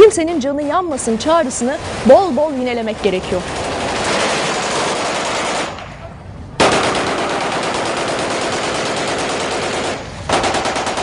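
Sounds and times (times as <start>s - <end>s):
automatic gunfire bursts: 3.4s - 5.8s, 6.6s - 11.0s.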